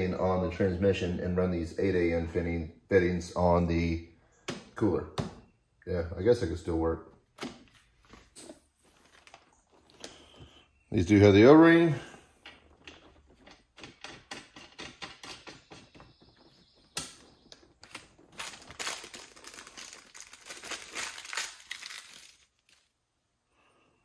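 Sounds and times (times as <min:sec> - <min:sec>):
plastic bag crinkling: 0:17.6 - 0:23.0.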